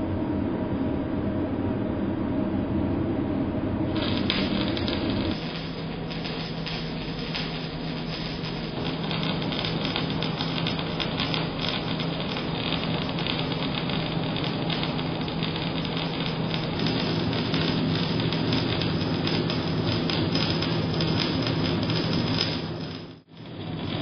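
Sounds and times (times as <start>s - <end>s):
steady low hum: 0.0s - 24.0s
welding arc crackling: 3.9s - 24.0s.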